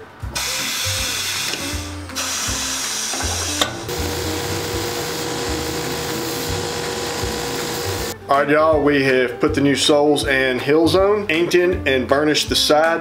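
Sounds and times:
background music: 0.0s - 13.0s
finishing machine running: 0.4s - 8.2s
leather ground on sanding wheel: 3.9s - 8.2s.

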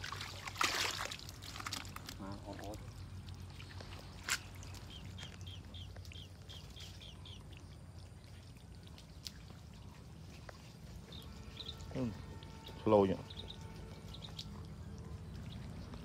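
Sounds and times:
faint trickling water: 0.0s - 16.0s
bird chirping: 3.5s - 16.0s.

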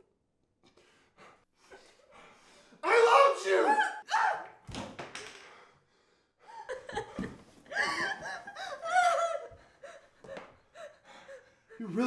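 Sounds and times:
people gasping and crying: 5.4s - 12.0s.

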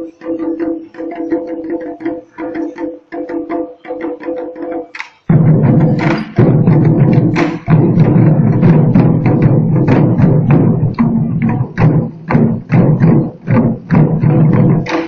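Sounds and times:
barrel drums beaten fast: 0.0s - 15.0s.

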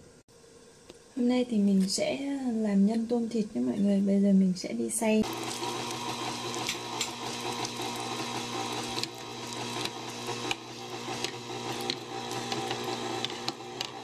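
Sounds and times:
meat grinder motor whirring: 5.2s - 14.0s.

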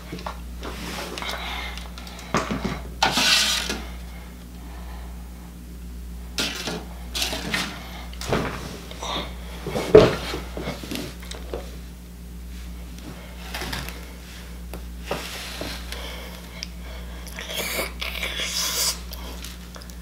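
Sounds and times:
steady low hum: 0.0s - 20.0s
handling knocks and rustles: 6.4s - 11.8s.

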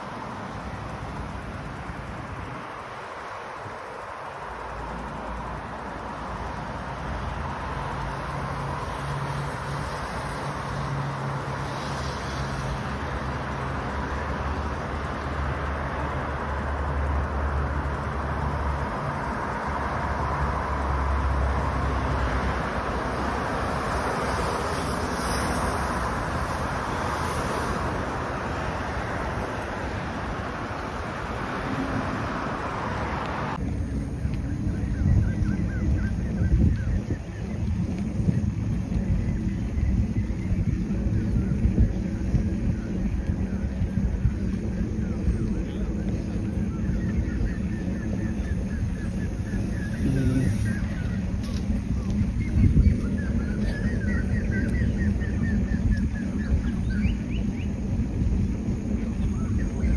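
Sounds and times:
road traffic passing: 0.0s - 59.9s.

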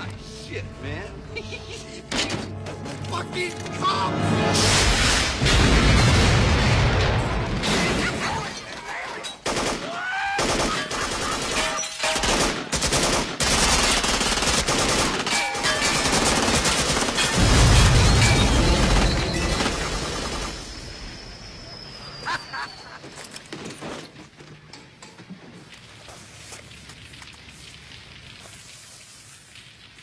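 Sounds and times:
loud explosion with deep rumble: 4.6s - 7.9s
automatic gunfire: 9.4s - 17.4s.

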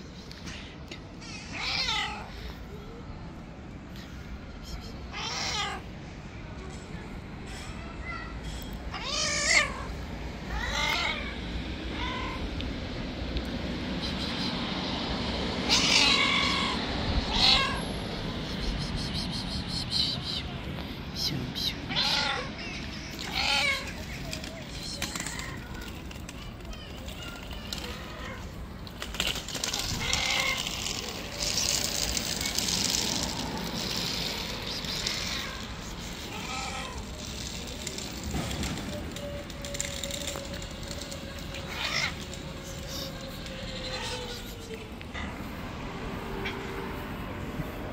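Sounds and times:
street background noise: 0.0s - 47.9s
cat meowing: 1.3s - 2.4s, 5.1s - 5.9s, 8.9s - 9.9s, 10.5s - 12.5s, 15.7s - 17.8s, 21.9s - 24.0s, 29.3s - 31.7s, 34.9s - 37.3s, 41.3s - 44.9s.

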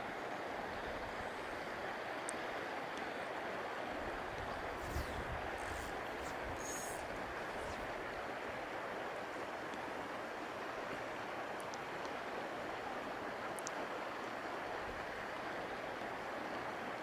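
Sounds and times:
river water flowing: 0.0s - 17.0s
faint high ticks: 2.2s - 3.1s, 11.6s - 12.2s, 13.5s - 13.8s.

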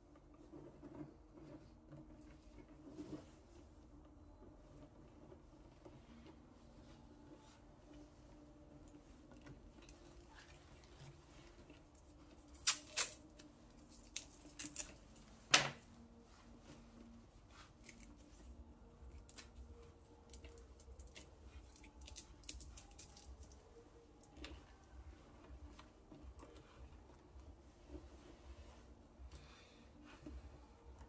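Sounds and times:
cables rustling: 0.0s - 31.0s
light ticks of wrapping: 16.1s - 28.4s.

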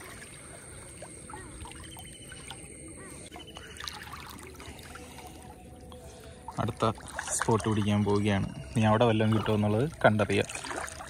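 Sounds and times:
water sloshing around wader: 0.0s - 11.0s.

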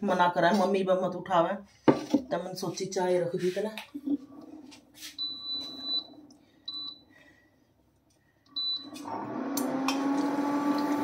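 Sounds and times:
appliance motor humming: 8.6s - 11.0s.

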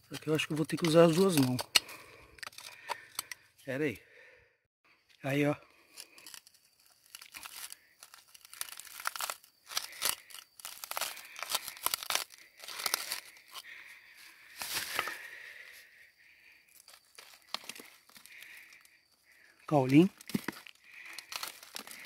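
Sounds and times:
screwdriver scraping rock: 0.0s - 3.4s.

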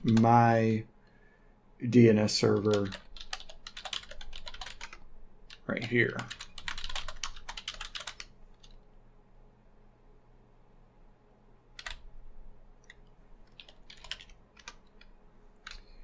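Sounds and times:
computer keyboard keystrokes: 0.0s - 0.3s, 2.6s - 5.6s, 6.2s - 8.8s, 11.8s - 12.0s, 12.8s - 15.9s.

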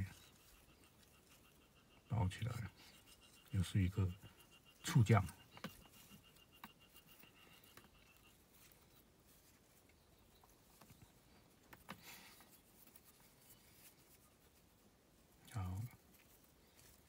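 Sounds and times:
faint cord rustling: 2.4s - 17.0s
soft taps of cord: 10.7s - 13.1s.

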